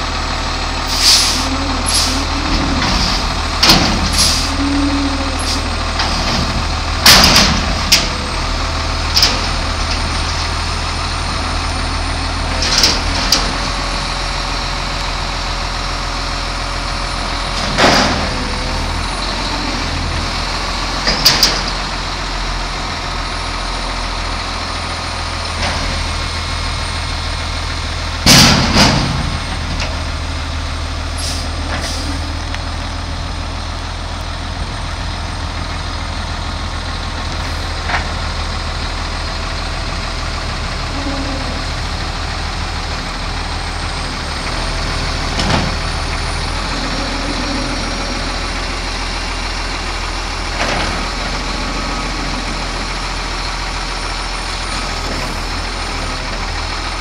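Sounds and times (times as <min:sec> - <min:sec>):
garbage truck engine running: 0:00.0 - 0:57.0
loud metal bangs: 0:28.2 - 0:29.7.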